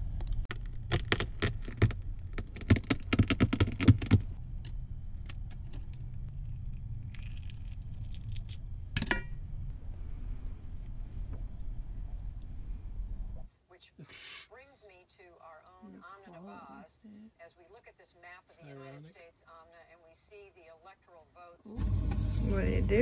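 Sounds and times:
steady low hum: 0.0 - 13.5, 21.7 - 23.0
eggshell crackling clicks: 0.2 - 8.6.

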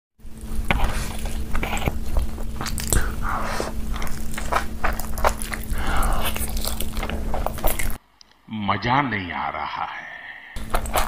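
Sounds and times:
faint steady hum: 0.2 - 11.0
person chewing food: 0.3 - 8.0, 10.6 - 11.0
person slurping noodles: 0.7 - 8.0.

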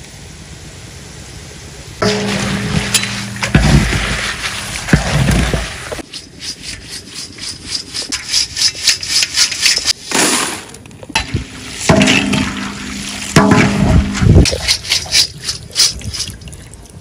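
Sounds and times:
low steady hum: 0.0 - 17.0
metal skimmer scraping a wok: 2.0 - 10.1.

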